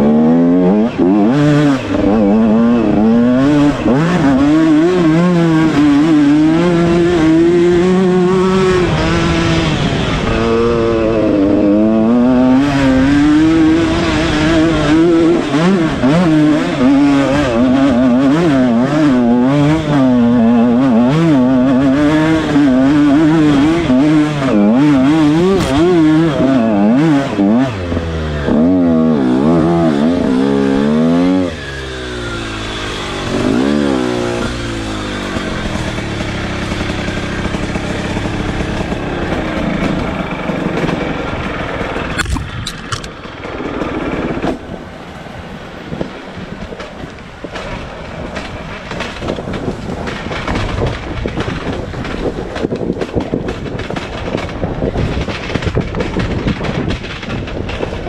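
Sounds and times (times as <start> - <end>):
dirt bike engine revving: 0.0 - 45.0.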